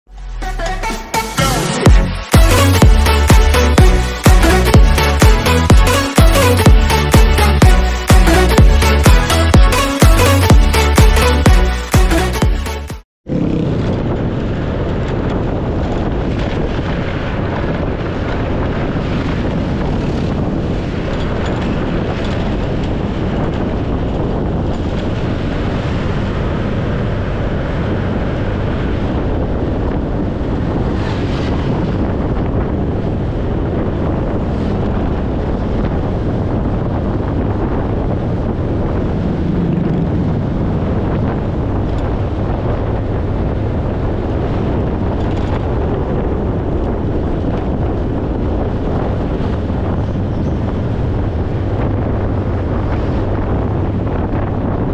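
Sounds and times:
road noise: 0.1 - 54.9
motorcycle engine: 0.2 - 54.9
wind buffeting microphone: 13.3 - 54.9.

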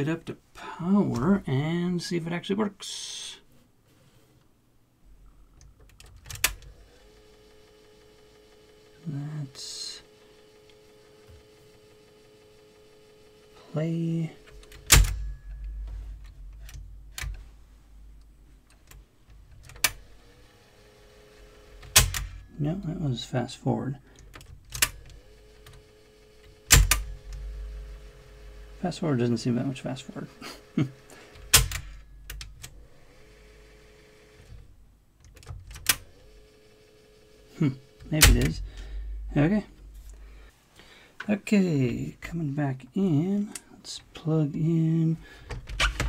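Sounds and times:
tape mechanism whirring: 5.2 - 23.0, 24.0 - 40.5, 45.3 - 46.0
low hum: 26.5 - 28.9, 37.6 - 40.5.

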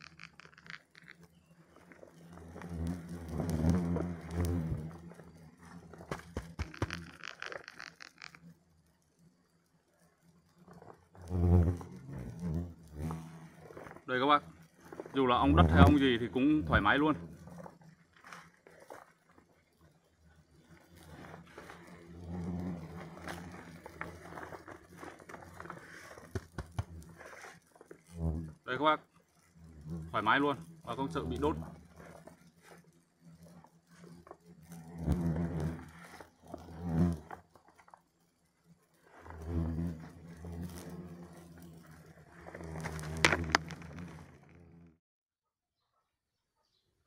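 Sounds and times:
sharp clicks: 0.0 - 1.3, 6.5 - 8.5
hornets buzzing: 0.0 - 44.9
plastic bee suit rustling: 21.0 - 28.1.

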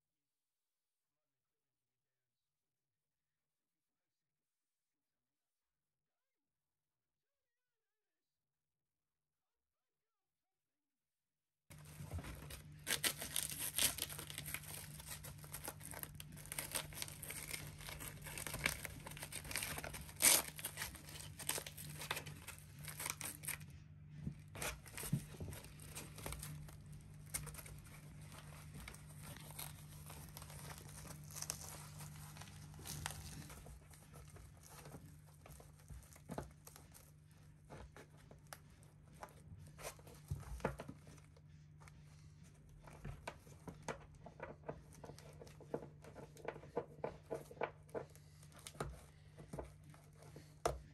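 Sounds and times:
fabric strap rustling: 11.8 - 23.6, 24.3 - 41.3
velcro straps ripping apart: 12.6 - 23.6, 28.8 - 33.6.

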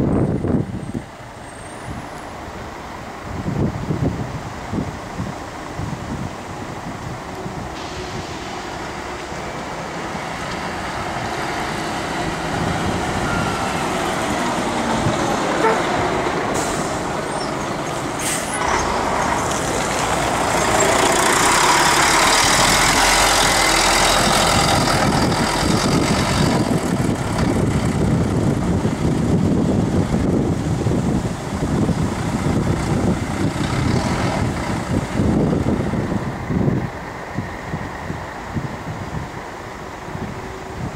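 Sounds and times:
diesel bus engine passing: 0.0 - 40.9
air hiss: 7.7 - 9.6, 18.2 - 18.6.

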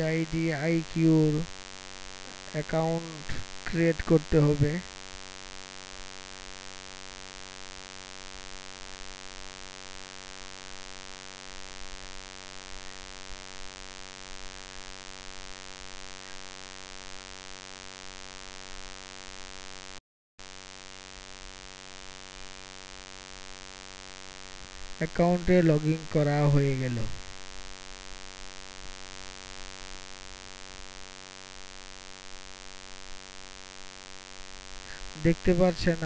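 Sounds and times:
recording hiss: 0.0 - 1.5, 2.1 - 4.9, 24.4 - 27.5, 34.7 - 36.0
electrical mains hum and buzz: 0.0 - 36.0.

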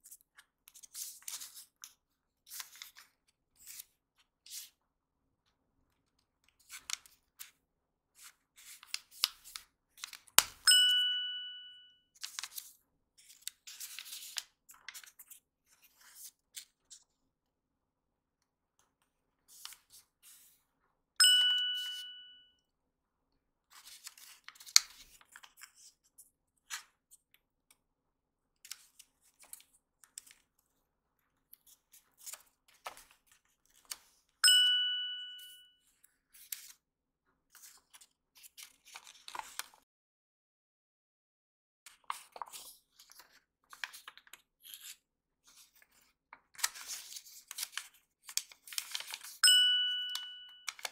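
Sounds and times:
paper folding and rustling: 0.0 - 4.8, 8.2 - 10.5, 12.2 - 17.0, 19.5 - 20.6, 23.7 - 27.0, 28.7 - 30.8, 31.4 - 34.3, 36.1 - 36.8, 37.5 - 39.8, 41.9 - 49.4
bell-like chime: 10.7 - 12.0, 21.2 - 22.5, 34.4 - 35.7, 49.4 - 50.9.

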